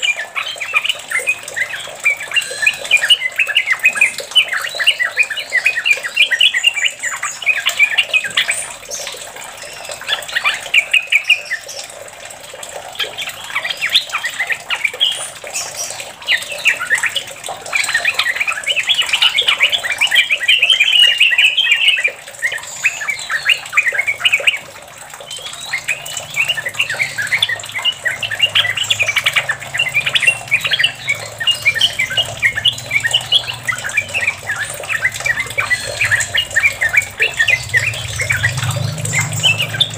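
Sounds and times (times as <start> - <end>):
bird singing chattering notes: 0.0 - 12.0, 12.8 - 39.9.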